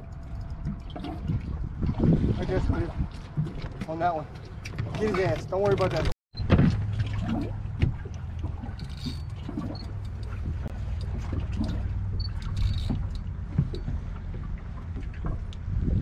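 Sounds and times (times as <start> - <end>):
boat engine low rumble: 0.0 - 16.0.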